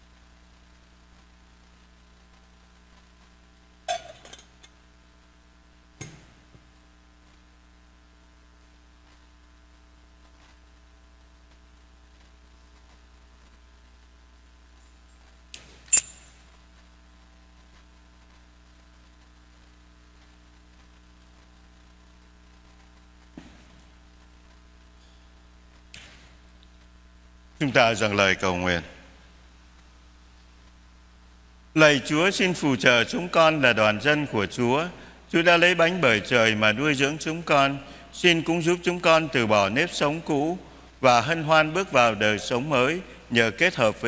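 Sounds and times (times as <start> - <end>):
faint electrical hum: 0.0 - 44.0
metal altar vessels clinking: 3.9 - 4.5, 15.9 - 16.3.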